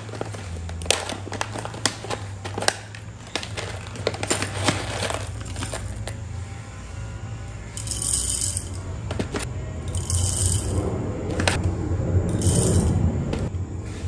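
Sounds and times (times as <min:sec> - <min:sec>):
paper bag crinkling: 0:00.0 - 0:06.1
low steady hum: 0:00.0 - 0:13.8.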